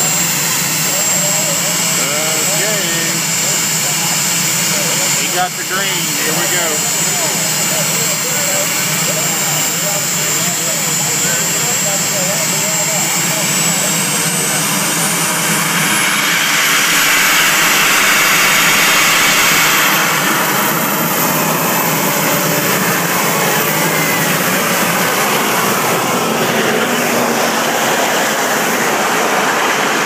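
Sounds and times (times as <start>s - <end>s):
vehicle engine roaring: 0.0s - 30.0s.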